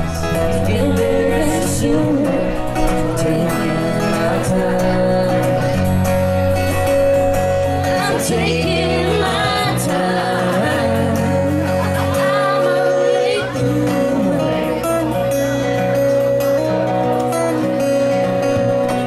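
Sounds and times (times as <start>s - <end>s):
woman singing: 0.0s - 6.7s, 7.8s - 15.0s
acoustic guitar: 0.0s - 19.0s
electric bass: 0.0s - 19.0s.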